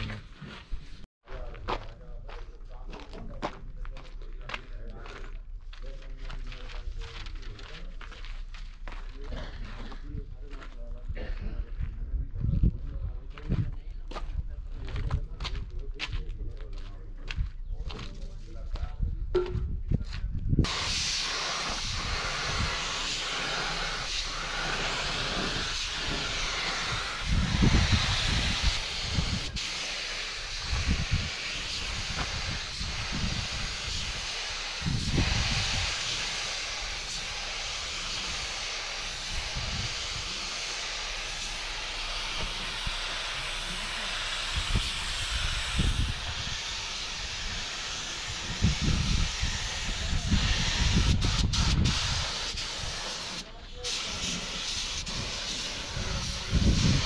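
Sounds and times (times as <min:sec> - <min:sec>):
paint spray gun hissing: 0:20.7 - 0:57.0.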